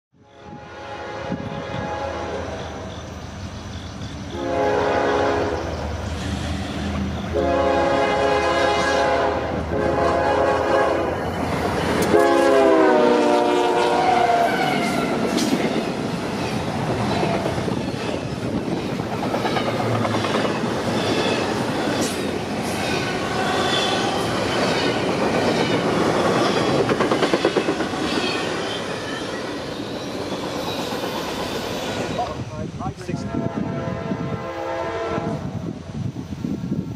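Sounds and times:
locomotive air horn blasts: 0.2 - 3.0, 4.3 - 5.7, 7.3 - 11.2, 12.0 - 15.2, 33.2 - 35.6
train wheels clacking over rail joints: 15.1 - 32.4.

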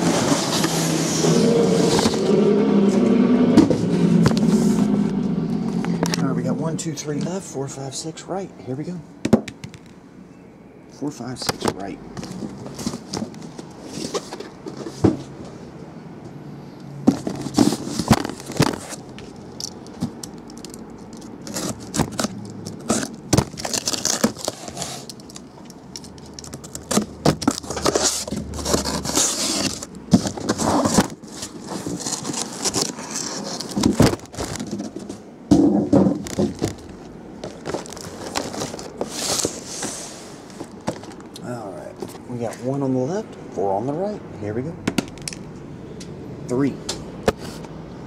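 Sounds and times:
cardboard scraping and crackling: 0.0 - 5.0, 11.4 - 15.5, 17.0 - 41.3
packing tape tearing: 17.1 - 35.1, 36.0 - 39.7.

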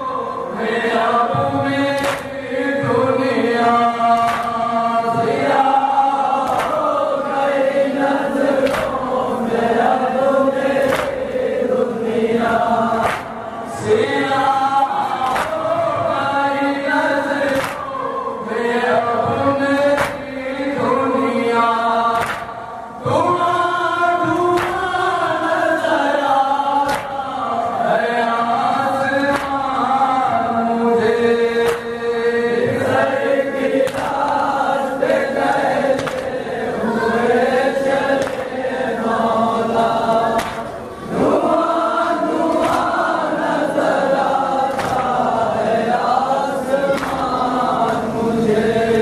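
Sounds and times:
men chanting in unison: 0.0 - 49.0
hands slapping chests: 1.9 - 2.4, 4.1 - 4.7, 6.4 - 6.9, 8.6 - 9.1, 10.8 - 11.4, 13.0 - 13.4, 15.2 - 15.8, 17.4 - 17.9, 19.9 - 20.3, 22.1 - 22.6, 24.6 - 24.9, 26.8 - 27.2, 29.3 - 29.8, 31.6 - 32.0, 33.8 - 34.5, 35.9 - 36.4, 38.1 - 38.6, 39.8 - 40.8, 42.4 - 43.0, 44.7 - 45.3, 46.8 - 48.0.

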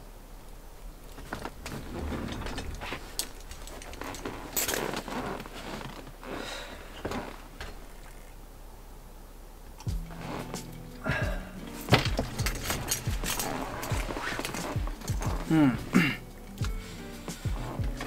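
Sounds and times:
rustling of person moving: 0.2 - 8.6, 9.6 - 18.0
knocks and light clicks: 16.5 - 18.0.

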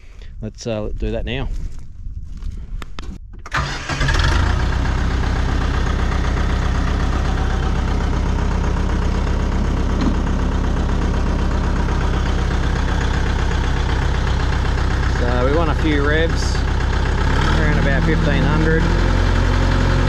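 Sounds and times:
tractor diesel engine starting: 3.4 - 20.0.

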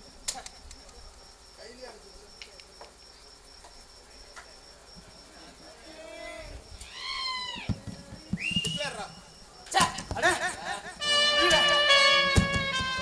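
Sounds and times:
high-pitched insect-like whine: 0.0 - 13.0
high-pitched drawn-out cry: 6.8 - 7.7.

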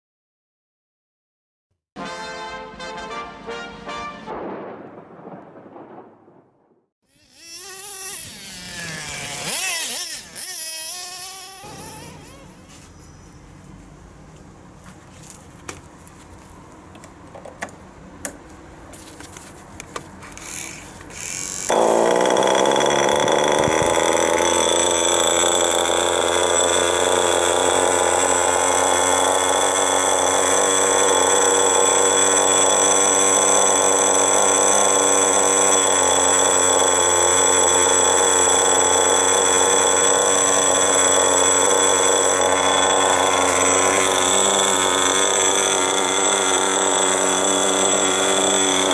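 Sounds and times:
model engine whining: 7.2 - 12.7, 20.3 - 48.9.

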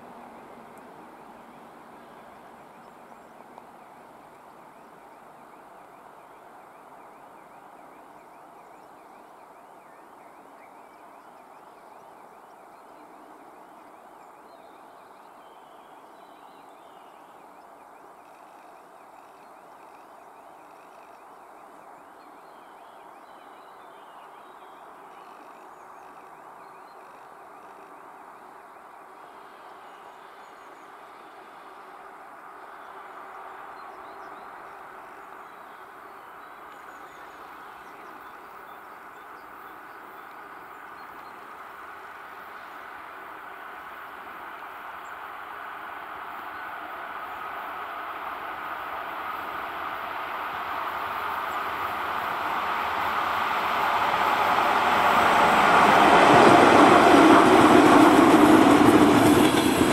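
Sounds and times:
outdoor background noise: 0.0 - 59.9
electric locomotive hauling train: 40.4 - 59.9.

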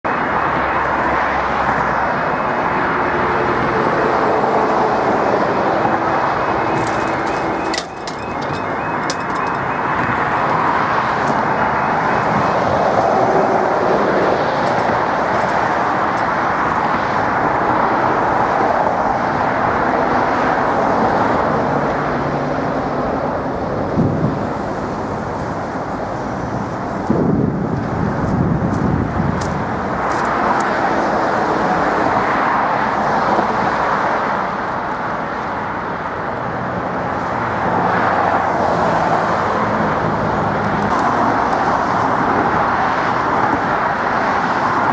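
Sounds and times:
road traffic noise: 0.0 - 44.9
pulsing warning alarms: 6.4 - 12.4.

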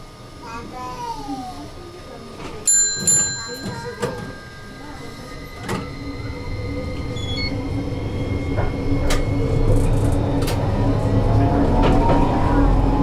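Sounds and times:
tram motor hum: 0.0 - 13.0.

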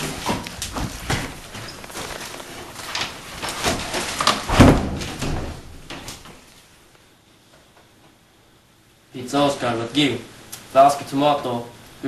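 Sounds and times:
knocks and thumps: 0.0 - 6.4
heavy thud: 4.5 - 6.1.

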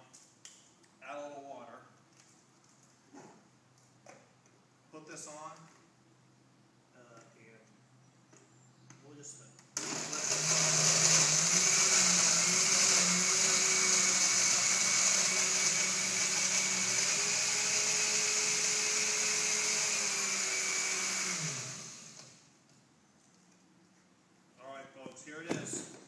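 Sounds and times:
blender motor winding down: 9.8 - 22.5
blender running: 9.8 - 22.5.

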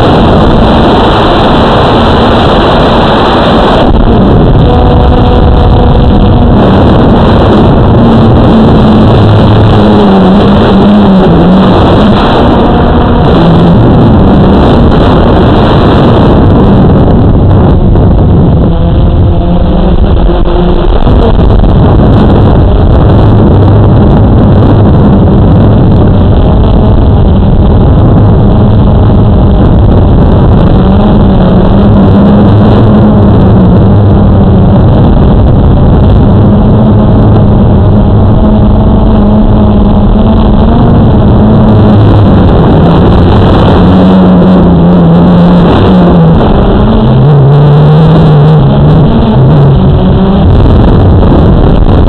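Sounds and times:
quadcopter motors droning: 0.0 - 23.2.

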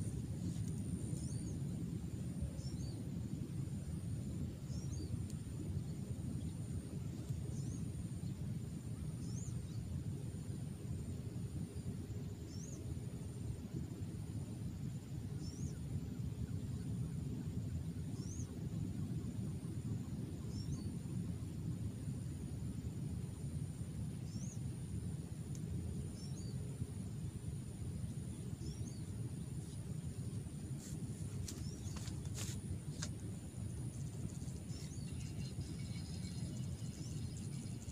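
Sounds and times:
faint high-pitched whine: 0.0 - 37.9
low outdoor rumble: 14.8 - 37.9
bird chirping: 34.3 - 37.9.

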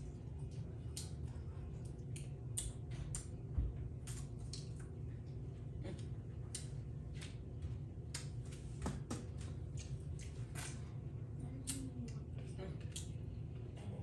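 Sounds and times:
wet chewing and smacking: 0.0 - 8.6, 9.3 - 11.0
steady low hum: 0.0 - 14.0.

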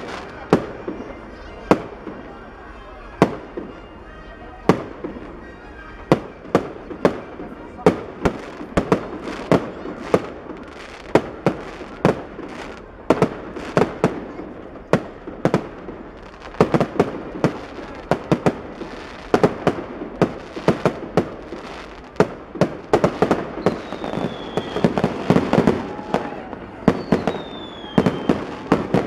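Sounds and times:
fireworks bangs: 0.0 - 3.9, 4.5 - 29.0.

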